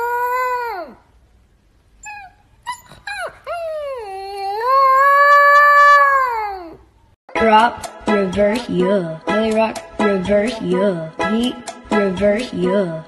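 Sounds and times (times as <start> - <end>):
puppy howling: 0.0 - 1.0, 2.0 - 6.9
puppy yipping: 2.0 - 6.8.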